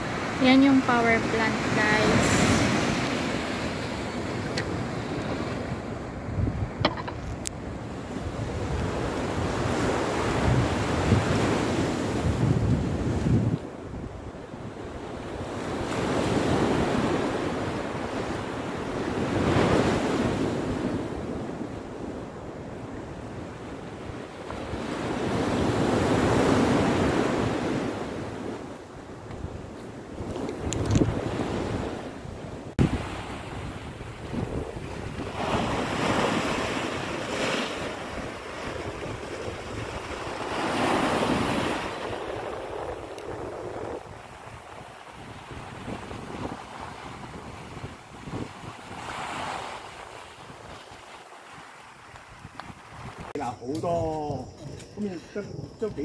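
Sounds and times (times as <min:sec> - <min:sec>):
waves on rocky shore: 0:00.0 - 0:54.3
wind buffeting microphone: 0:00.0 - 0:56.0
waves breaking on rocks: 0:34.5 - 0:54.0.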